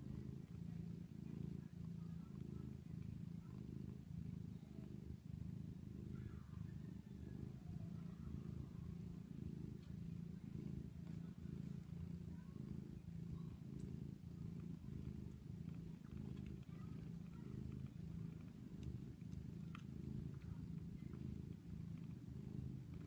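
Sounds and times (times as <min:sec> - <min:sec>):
cat purring: 0:00.0 - 0:23.0.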